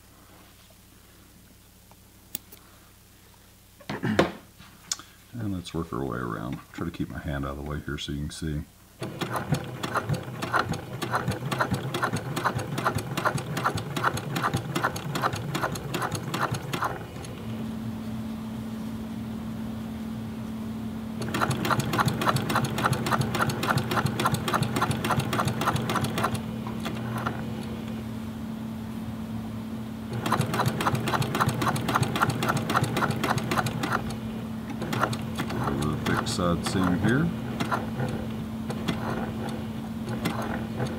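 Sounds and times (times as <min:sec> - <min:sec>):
steady hum: 0:00.0 - 0:40.9
sewing machine needle clatter: 0:09.0 - 0:17.3, 0:21.2 - 0:27.4, 0:30.1 - 0:37.0, 0:37.6 - 0:40.9.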